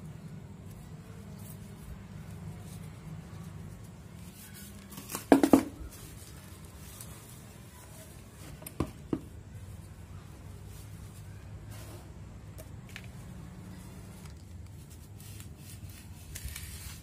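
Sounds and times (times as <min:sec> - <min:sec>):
plastic flowerpot knocks: 0:05.2 - 0:05.8.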